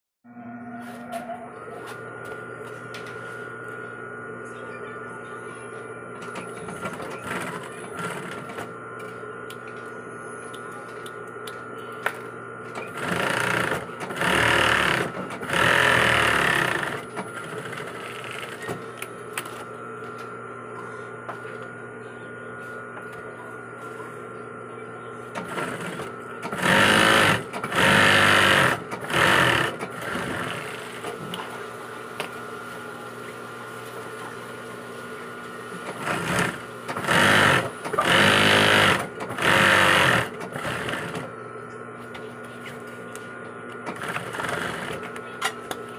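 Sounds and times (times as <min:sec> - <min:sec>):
steady hum: 0:00.3 - 0:45.9
sewing machine stitching: 0:06.3 - 0:08.7, 0:12.8 - 0:18.7, 0:25.4 - 0:31.1, 0:35.8 - 0:41.3, 0:43.8 - 0:45.1.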